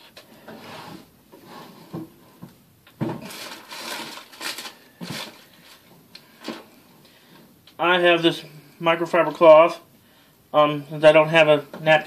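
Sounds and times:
rustling: 0:00.0 - 0:07.4
rummaging knocks and clatters: 0:00.4 - 0:06.7.

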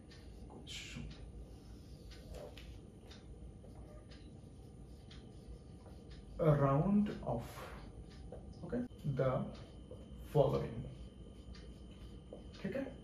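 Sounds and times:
marker pen scratching on whiteboard: 0:03.5 - 0:06.7, 0:11.2 - 0:12.9.

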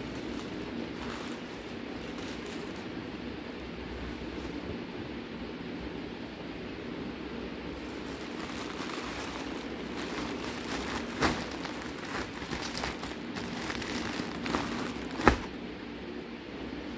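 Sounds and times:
plastic bag crinkling: 0:00.0 - 0:03.0, 0:07.8 - 0:15.6.

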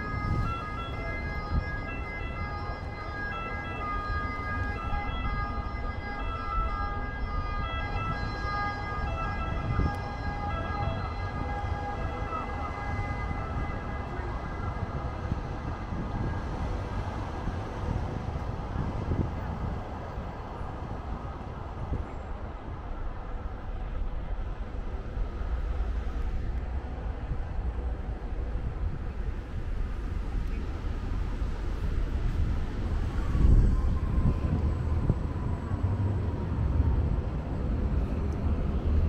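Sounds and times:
emergency vehicle siren: 0:00.0 - 0:39.0
street traffic rumble: 0:00.0 - 0:39.0.

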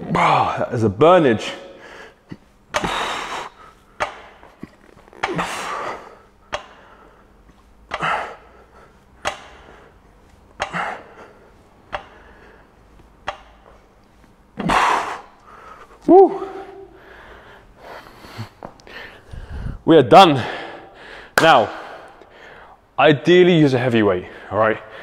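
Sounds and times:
man exhaling forcefully: 0:02.8 - 0:03.6.

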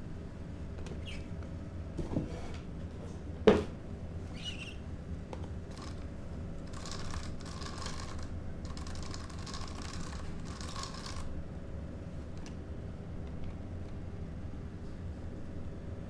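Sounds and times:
toy car clicking and rattling: 0:05.7 - 0:06.0, 0:06.6 - 0:11.3.

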